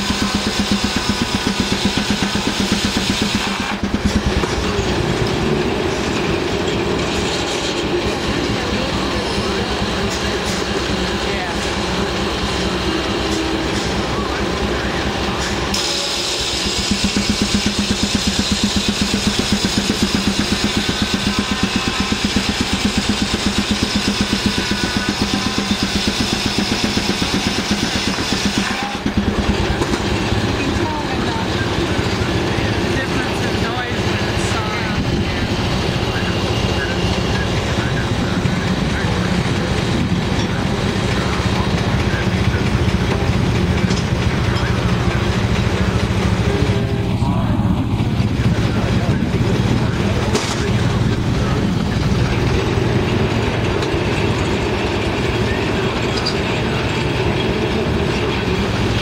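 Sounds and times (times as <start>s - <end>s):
pulsing mill engine: 0.0s - 59.0s
saw blade hissing through log: 15.7s - 22.7s.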